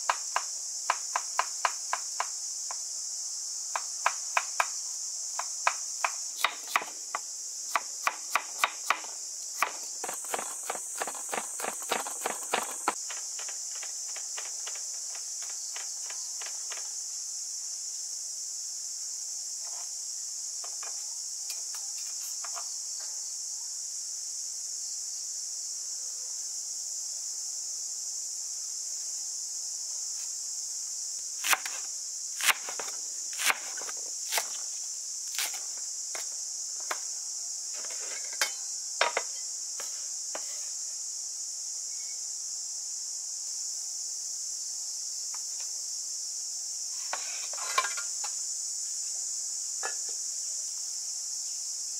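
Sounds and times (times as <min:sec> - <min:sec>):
knife chopping on wooden board: 0:07.7 - 0:14.8, 0:32.4 - 0:34.6
high-pitched insect drone: 0:24.5 - 0:51.9.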